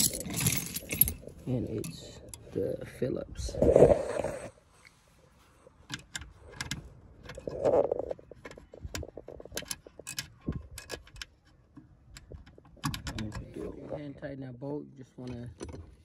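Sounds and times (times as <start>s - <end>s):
metallic clicks and rattles: 5.9s - 13.6s.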